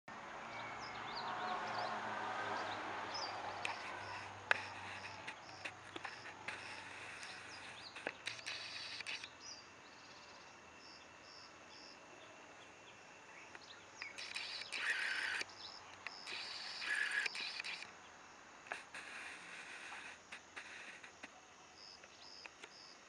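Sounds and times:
sharp clicks: 3.5s - 9.4s, 13.5s - 18.0s.

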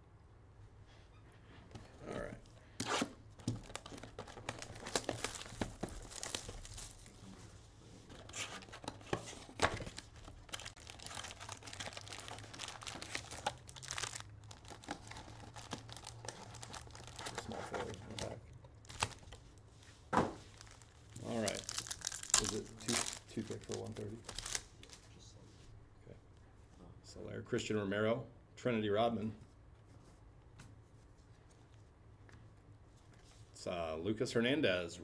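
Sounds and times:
card pack wrappers tearing: 2.8s - 7.2s, 8.2s - 19.4s, 20.5s - 25.0s.

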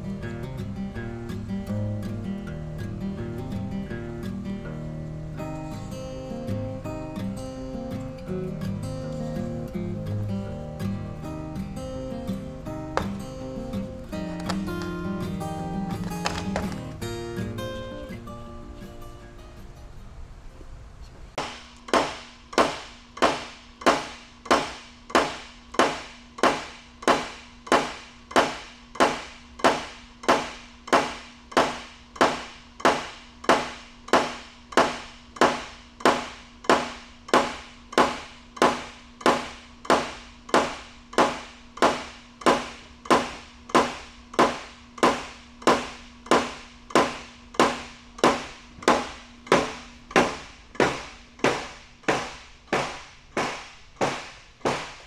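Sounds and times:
sharp metal knocks: 13.0s - 13.4s, 21.4s - 55.0s.

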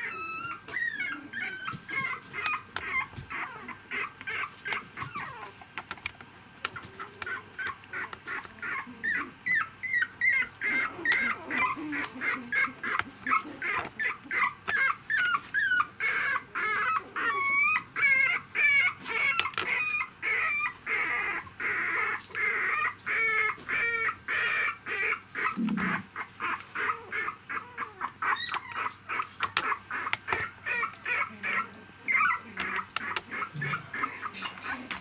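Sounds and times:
puppies whimpering: 0.0s - 5.7s, 6.6s - 35.0s.

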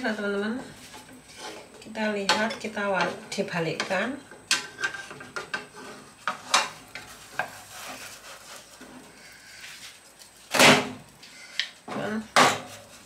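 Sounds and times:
faint sizzle of frying: 0.0s - 13.0s
spatula scraping frying pan: 0.8s - 1.8s, 4.6s - 9.9s.

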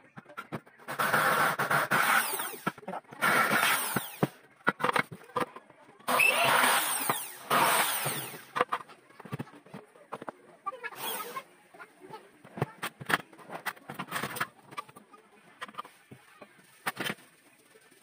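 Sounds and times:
drill motor whining: 0.9s - 4.3s, 6.1s - 8.5s, 11.0s - 11.4s
electric drill drilling into metal: 0.9s - 4.3s, 6.1s - 8.5s, 11.0s - 11.4s.

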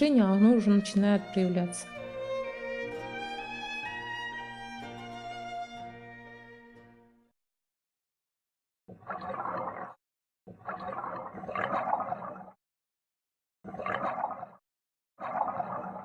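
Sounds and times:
underwater air bubbling: 8.9s - 12.6s, 13.7s - 14.6s, 15.2s - 16.0s.

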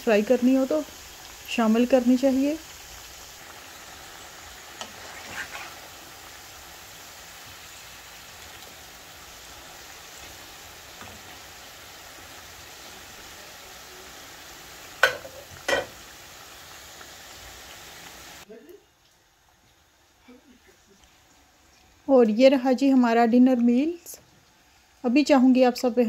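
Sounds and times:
chips sizzling in hot oil: 0.0s - 26.0s
metal turner knocking on pan: 15.0s - 15.9s.

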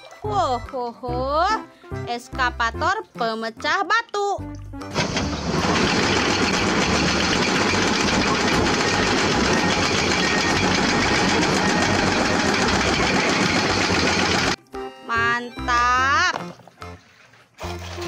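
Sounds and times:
motor running with rattle: 4.9s - 14.6s.

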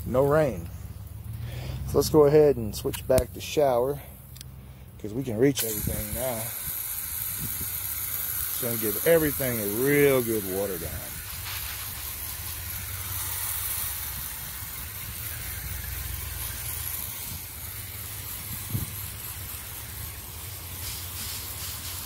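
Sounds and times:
hose spraying water on plants: 5.0s - 22.0s.

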